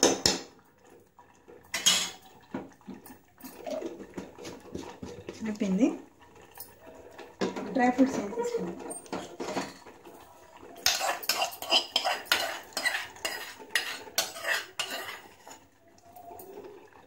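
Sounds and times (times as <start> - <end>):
metal spoon scraping a pot: 1.7 - 2.2, 10.8 - 15.7.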